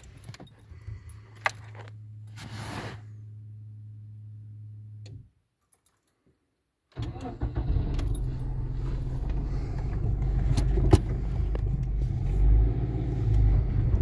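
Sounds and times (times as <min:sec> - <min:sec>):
engine rumble with clicks: 0:00.0 - 0:02.4, 0:06.9 - 0:14.0
car engine idling: 0:07.0 - 0:14.0.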